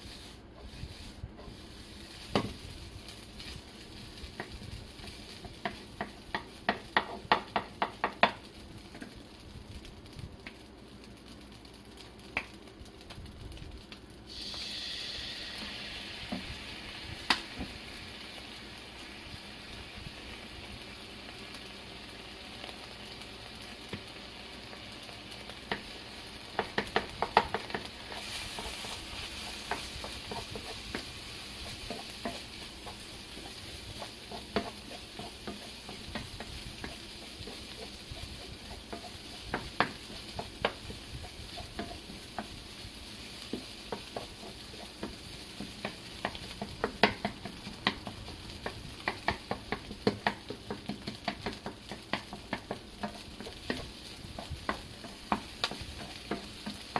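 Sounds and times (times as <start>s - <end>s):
food sizzling in a pan: 0.0s - 56.9s
spatula clacking and scraping pan: 4.2s - 9.1s, 25.6s - 56.9s.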